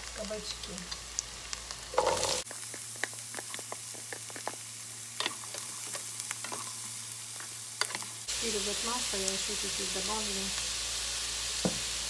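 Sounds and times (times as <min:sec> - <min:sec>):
sizzling oil with crackles: 0:00.0 - 0:12.0
vegetable cubes clattering into pan: 0:01.9 - 0:02.4.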